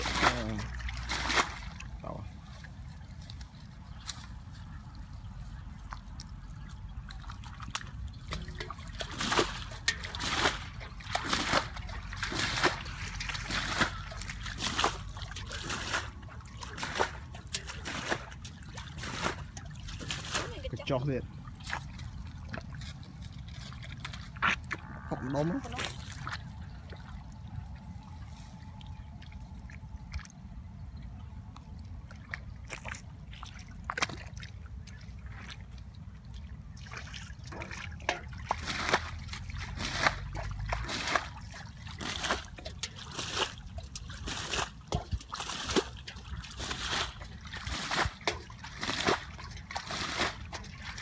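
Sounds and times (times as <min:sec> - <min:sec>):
hands working in mud: 0:00.0 - 0:30.5, 0:32.0 - 0:51.0
muddy water sloshing and splashing: 0:00.0 - 0:51.0
water trickling: 0:00.0 - 0:51.0.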